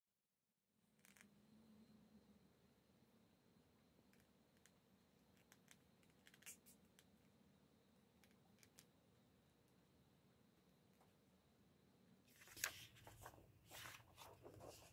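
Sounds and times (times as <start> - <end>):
faint paper claws clicking: 4.1 - 7.1.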